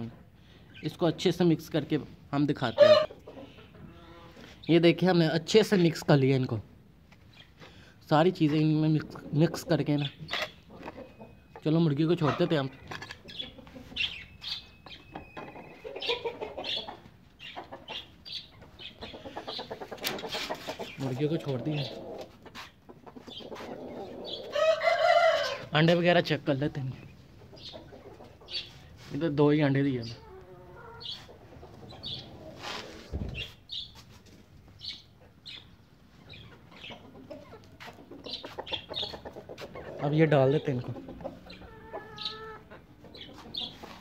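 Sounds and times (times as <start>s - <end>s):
chickens clucking: 0.0s - 44.0s
high bird chirps: 13.2s - 19.7s
rustle: 32.4s - 34.5s.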